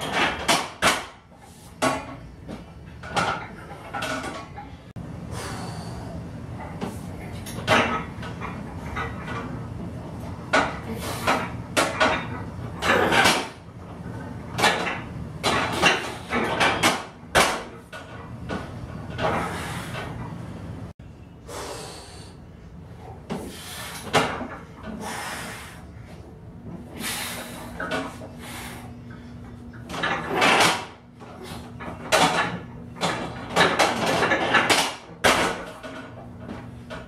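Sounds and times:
leg press knocks and clanks: 0:00.0 - 0:01.2, 0:01.8 - 0:04.7, 0:06.6 - 0:20.2, 0:29.7 - 0:37.0
leg press scraping: 0:10.6 - 0:17.8.

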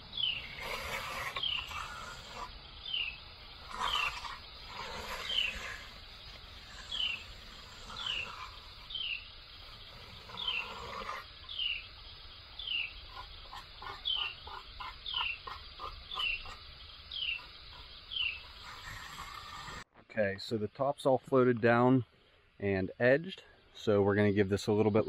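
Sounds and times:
bird chirping: 0:00.0 - 0:19.8
float scraping wet concrete: 0:00.4 - 0:02.5, 0:03.6 - 0:08.9, 0:18.2 - 0:19.9.

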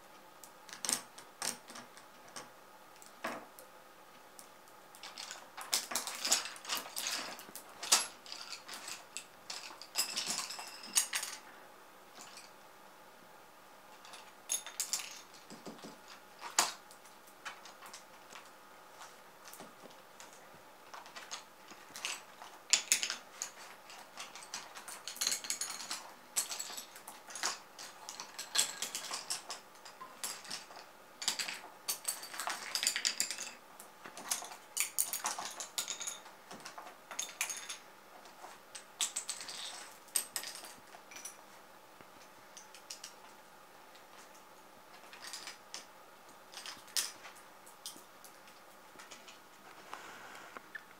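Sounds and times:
pencils clattering on wooden floor: 0:05.0 - 0:11.5, 0:19.4 - 0:41.4, 0:44.1 - 0:45.9, 0:46.5 - 0:49.4.

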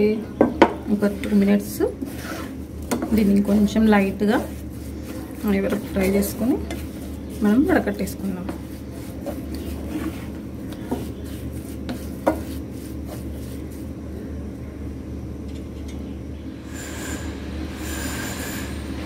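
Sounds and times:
steady low hum: 0:00.0 - 0:19.0
wooden spatula scraping a pan: 0:00.9 - 0:13.9
spatula knocking against pan: 0:11.8 - 0:12.6.

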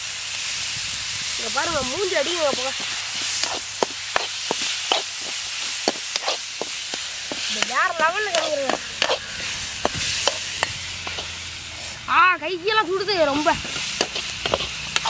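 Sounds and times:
vegetables sizzling in pan: 0:00.0 - 0:15.0
steel ladle scraping and clinking: 0:02.2 - 0:12.0, 0:13.6 - 0:15.0.

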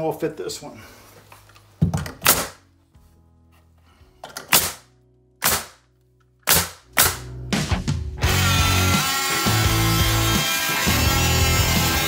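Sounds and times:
nail gun firing: 0:02.2 - 0:02.6, 0:04.4 - 0:05.8, 0:06.4 - 0:07.4.

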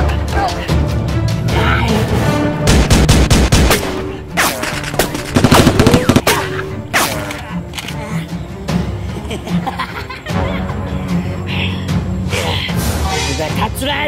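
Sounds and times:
background music: 0:00.0 - 0:14.0
gunfire sound effects: 0:02.7 - 0:07.3.

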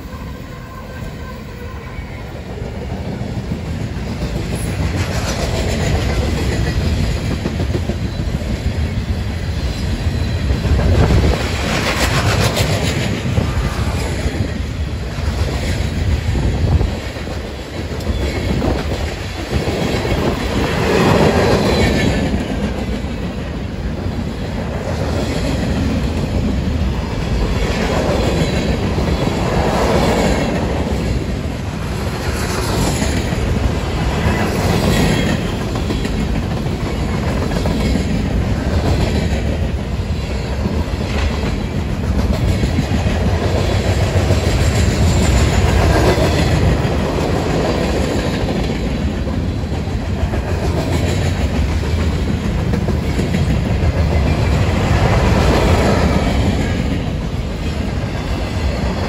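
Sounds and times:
steel wheels rumbling on rail: 0:00.0 - 0:59.0.

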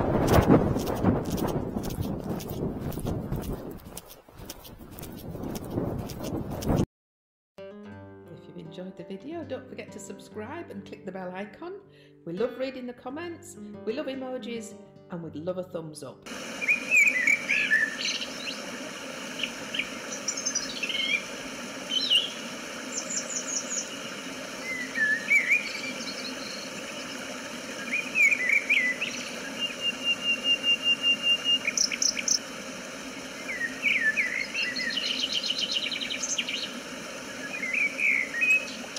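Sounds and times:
falling water rushing: 0:16.3 - 0:38.9
songbirds singing and calling: 0:16.6 - 0:18.7, 0:19.4 - 0:21.3, 0:21.9 - 0:32.4, 0:33.4 - 0:38.9.

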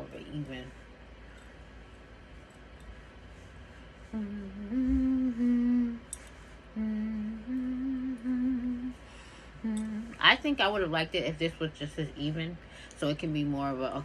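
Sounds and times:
woman humming: 0:04.1 - 0:09.0, 0:09.6 - 0:10.2.

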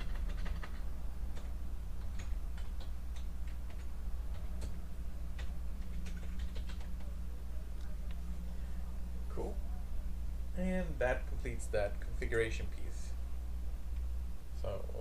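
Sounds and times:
keyboard keys clicking: 0:00.0 - 0:07.2
steady low hum: 0:00.0 - 0:15.0.

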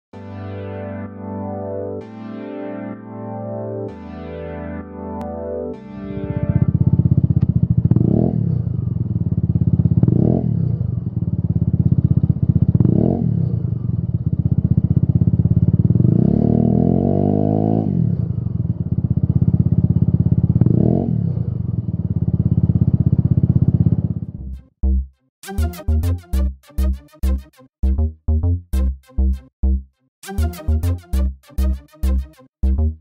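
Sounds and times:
scooter engine idling and revving: 0:06.2 - 0:25.0.

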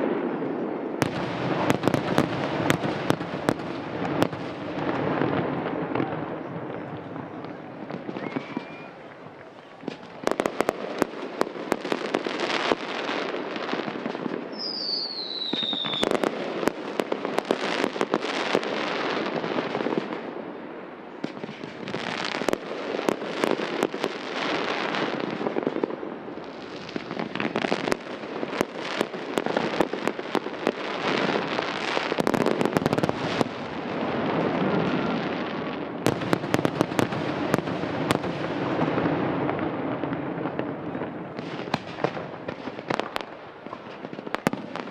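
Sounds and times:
firework crackling: 0:00.0 - 0:44.9
descending firework whistle: 0:05.4 - 0:10.5, 0:14.5 - 0:16.3.

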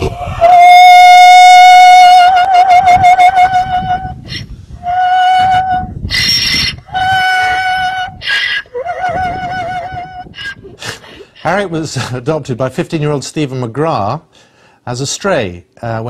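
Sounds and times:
donkey braying: 0:00.0 - 0:11.7.

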